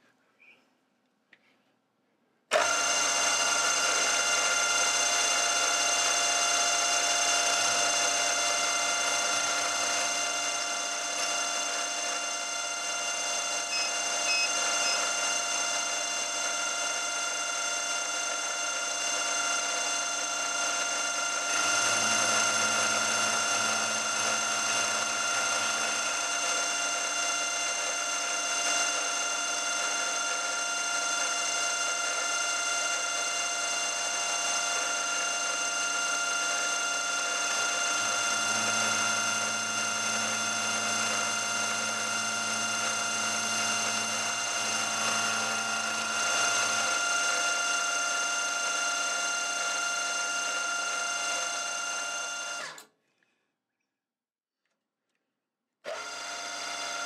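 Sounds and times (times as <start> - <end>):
milling machine whine: 2.5 - 52.8, 55.9 - 57.0.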